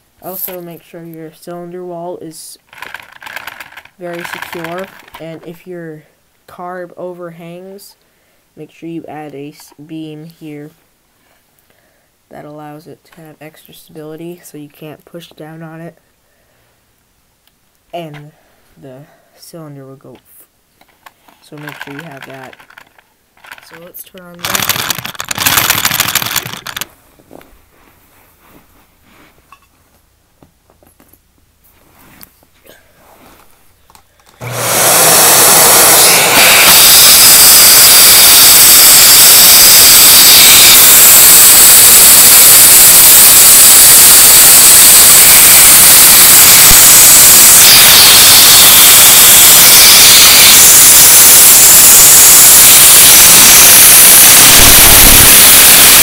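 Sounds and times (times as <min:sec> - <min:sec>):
vacuum cleaner running: 0:34.4 - 0:56.0.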